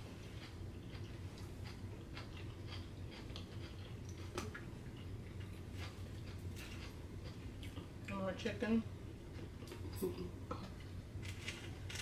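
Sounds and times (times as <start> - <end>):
chewing: 0.0 - 7.9
steady low hum: 0.0 - 12.0.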